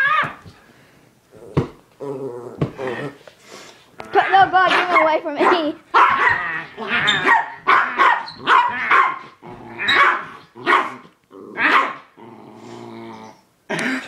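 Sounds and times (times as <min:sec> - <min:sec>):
dog growling low: 0:01.3 - 0:03.2, 0:09.4 - 0:10.7, 0:11.3 - 0:13.4
dog barking: 0:04.7 - 0:06.5, 0:07.1 - 0:11.0, 0:11.6 - 0:12.1.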